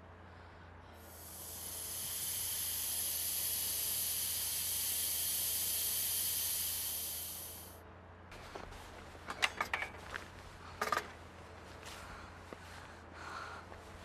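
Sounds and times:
air hissing out of a tyre: 1.0s - 7.8s.

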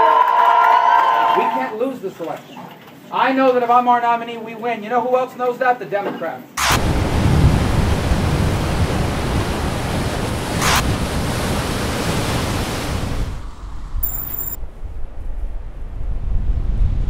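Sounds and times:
storm surf breaking: 6.6s - 14.6s
wind on microphone: 6.8s - 17.0s.

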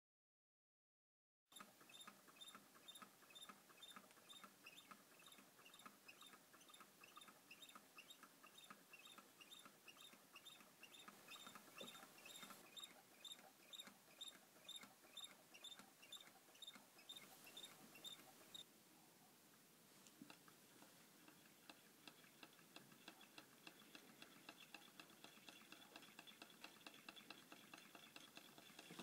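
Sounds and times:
engine squeaky ticking: 1.5s - 18.6s.

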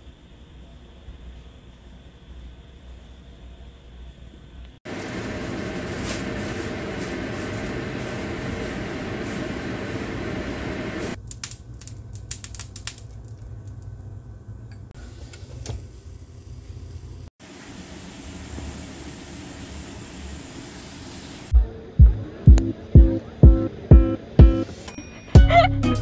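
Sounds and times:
loud steady rushing noise: 4.9s - 11.2s.

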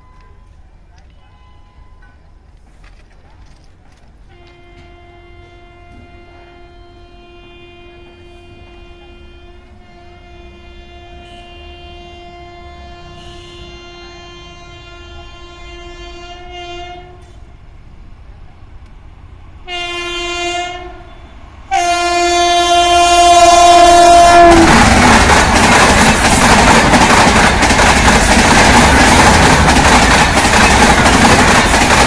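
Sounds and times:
locomotive horn blasts: 4.3s - 17.5s, 19.7s - 24.9s
train coaches rushing past: 7.8s - 32.0s.

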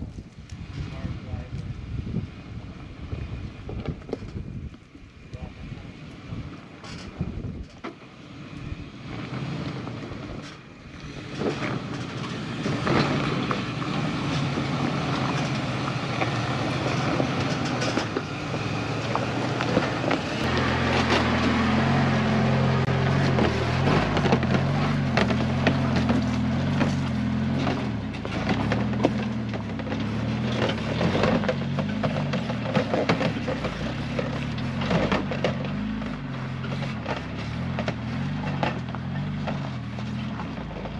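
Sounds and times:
off-road vehicles crawling: 0.0s - 40.9s
engine revving past: 8.3s - 40.7s
tyres crunching on rocks: 10.5s - 40.9s.

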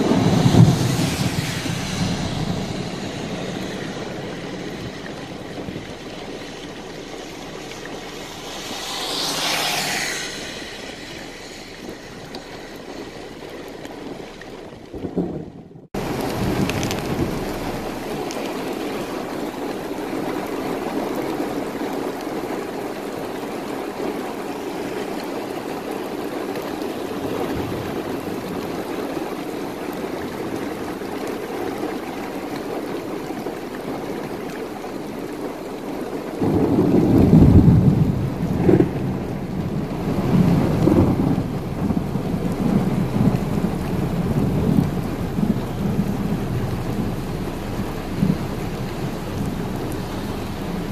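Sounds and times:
rumble of thunder: 0.0s - 50.9s
steady rain: 0.0s - 50.9s.

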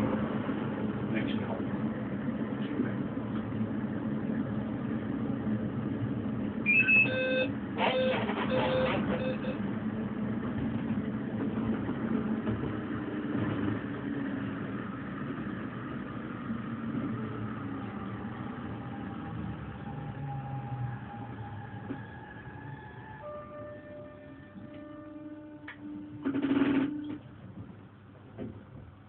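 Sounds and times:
light-rail train rumbling: 0.0s - 29.0s
train horn blasts: 23.2s - 27.2s.

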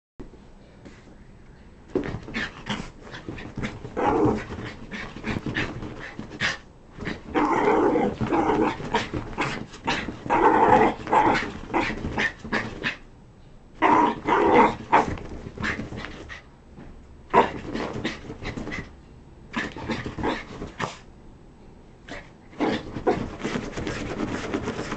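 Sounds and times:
paws scuffling on bedding: 1.9s - 13.0s, 13.9s - 18.9s, 22.6s - 24.9s
small dog growling and barking: 2.0s - 13.0s, 13.8s - 16.4s, 17.3s - 18.9s, 19.5s - 21.0s, 22.1s - 24.0s.

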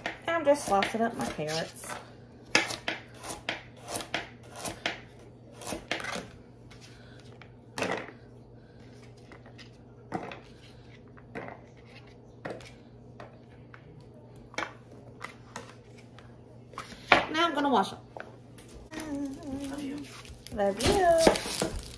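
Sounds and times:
knife slicing carrots: 0.0s - 6.3s.

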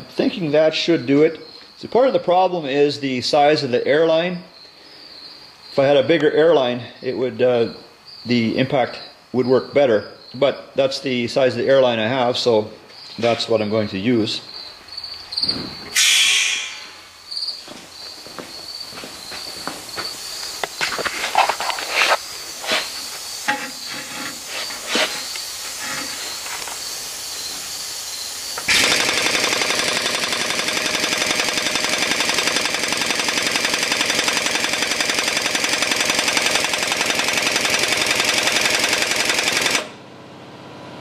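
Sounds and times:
air impact wrench hammering: 15.5s - 17.1s, 22.0s - 27.7s, 28.5s - 40.0s.

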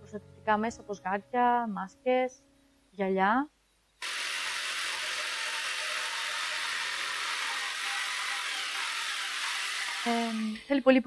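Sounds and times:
jigsaw cutting wood: 4.0s - 10.7s.

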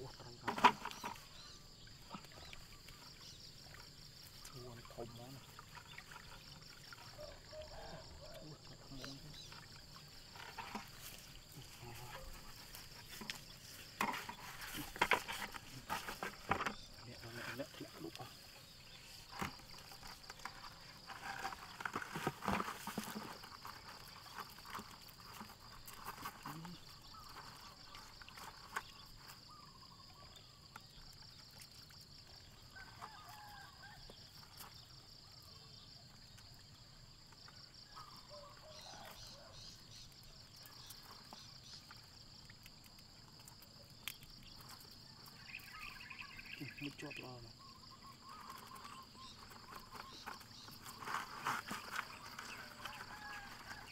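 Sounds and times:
insects trilling: 0.0s - 53.9s
net rustling over plastic bucket: 10.2s - 17.0s, 18.3s - 27.6s.

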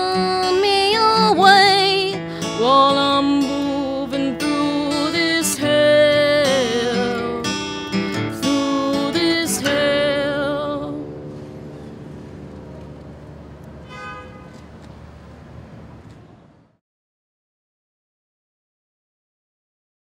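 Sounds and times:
woman singing: 0.0s - 11.1s
acoustic guitar strumming: 0.0s - 14.6s.

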